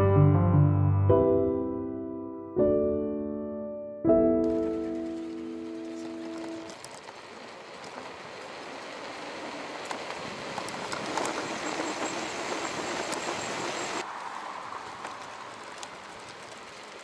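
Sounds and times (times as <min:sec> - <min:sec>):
bike clicks and rattles: 0:04.6 - 0:14.0, 0:14.8 - 0:17.0
bicycle tyre and wind noise: 0:04.6 - 0:17.0.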